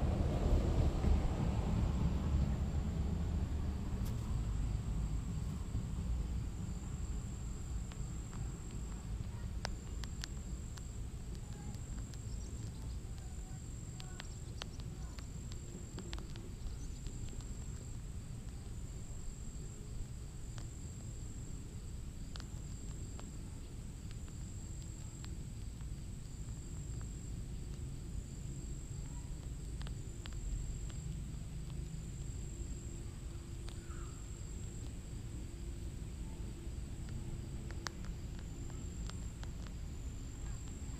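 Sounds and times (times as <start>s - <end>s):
low rumble: 0.0s - 19.2s
pulsing insect trill: 4.3s - 40.9s
faint clicks: 7.0s - 40.9s.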